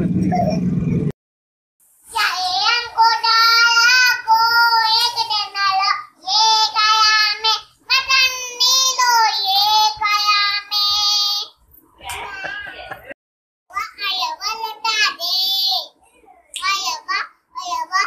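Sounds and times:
girl singing unaccompanied: 2.0 - 11.6, 13.7 - 18.0.

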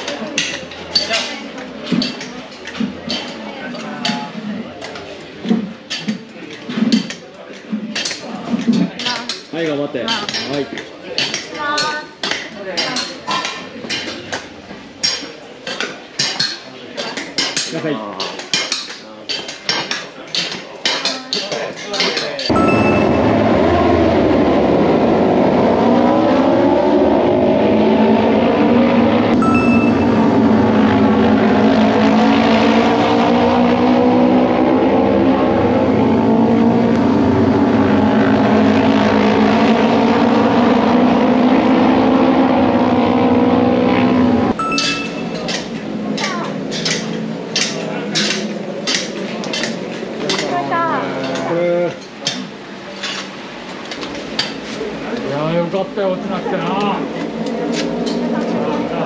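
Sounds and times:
racing motorcycles passing: 22.5 - 51.6, 53.3 - 59.0.

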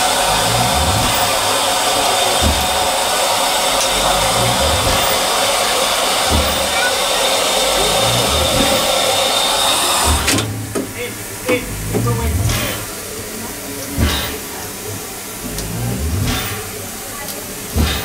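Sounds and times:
low thumps: 0.0 - 1.6, 2.4 - 3.0, 3.8 - 5.4, 7.7 - 9.1, 10.1 - 13.0, 14.0 - 16.7
loud steam hiss: 0.0 - 18.0.

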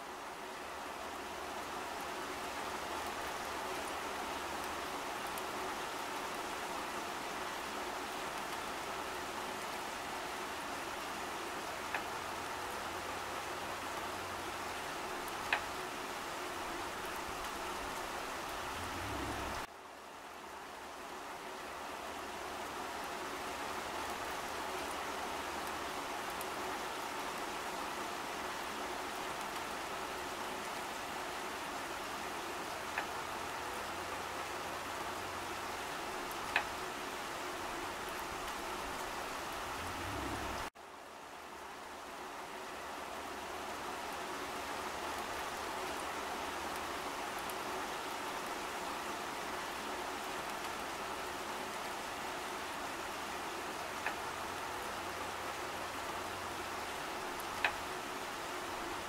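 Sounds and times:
rain falling on leaves: 0.0 - 59.0
faint drip ticks: 11.8 - 12.8, 15.2 - 15.8, 32.8 - 33.2, 36.3 - 36.8, 50.4 - 50.9, 53.9 - 54.3, 56.9 - 57.9.

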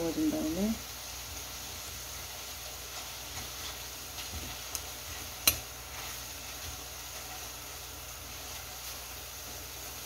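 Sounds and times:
meat sizzling in a frying pan: 0.0 - 10.0
tongs clicking against pan: 4.6 - 5.7.

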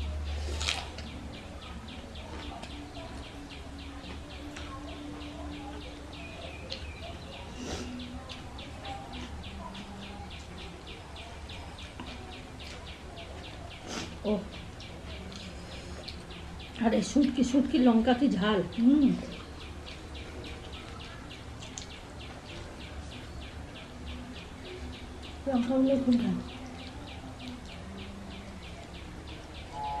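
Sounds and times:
rhythmic high chirping: 27.8 - 30.0.

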